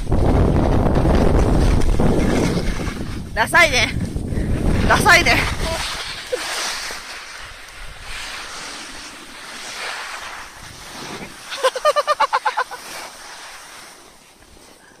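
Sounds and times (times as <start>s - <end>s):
steady hiss: 4.6s - 15.0s
person laughing: 11.5s - 12.9s.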